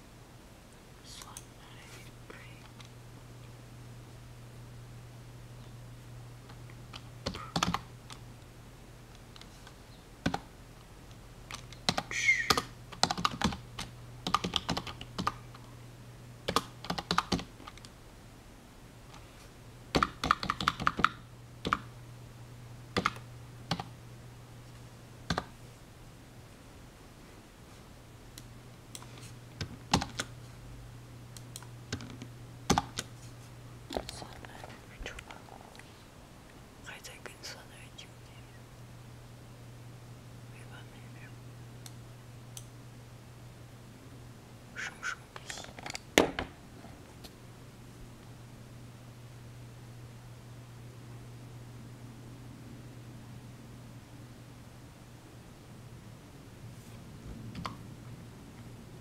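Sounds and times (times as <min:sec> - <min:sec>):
steady low hum: 0:00.0 - 0:59.0
computer keyboard typing: 0:06.9 - 0:08.2, 0:10.2 - 0:10.5, 0:11.5 - 0:15.4, 0:16.4 - 0:17.9, 0:19.9 - 0:21.9, 0:23.0 - 0:23.9, 0:29.0 - 0:30.3, 0:31.6 - 0:33.1.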